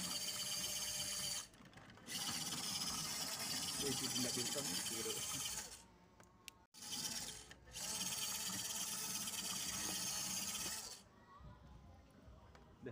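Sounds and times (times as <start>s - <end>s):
small electric motor whining: 0.0s - 5.9s, 6.8s - 11.0s.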